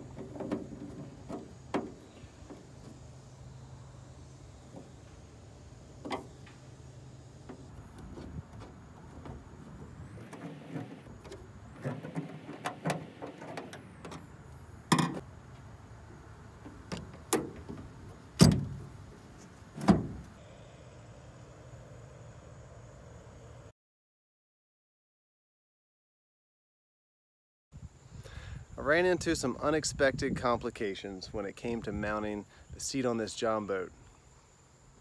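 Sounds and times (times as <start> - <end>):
rustling and scraping: 0.0 - 3.7, 4.4 - 15.7, 16.5 - 20.4.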